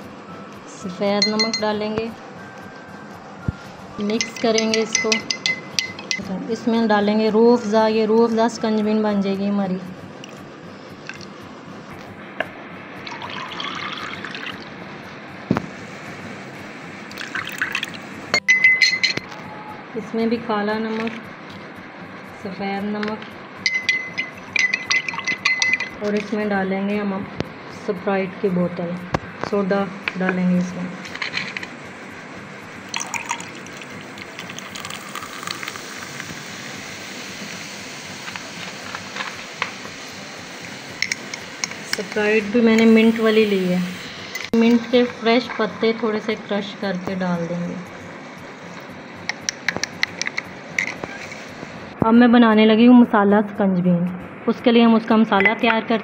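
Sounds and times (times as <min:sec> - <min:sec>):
glass and spoon clinking: 0:01.2 - 0:01.8, 0:04.0 - 0:06.3, 0:18.4 - 0:19.3, 0:23.6 - 0:26.3, 0:33.0 - 0:35.8
soda fizzing with tiny pops: 0:11.0 - 0:11.4, 0:13.0 - 0:14.7, 0:17.1 - 0:18.0, 0:32.9 - 0:40.0
water pouring into a glass: 0:13.0 - 0:14.7, 0:17.1 - 0:18.0, 0:32.9 - 0:36.2.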